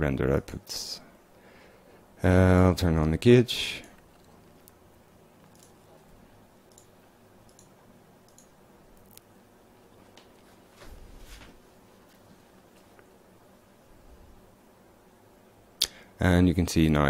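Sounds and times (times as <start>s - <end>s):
low room hum: 0.0s - 17.0s
computer mouse clicks: 5.4s - 5.8s, 6.7s - 9.3s.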